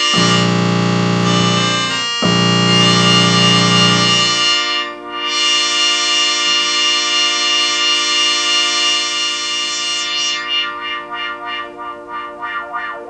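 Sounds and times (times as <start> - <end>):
synthesizer held chord: 0.0 - 5.9.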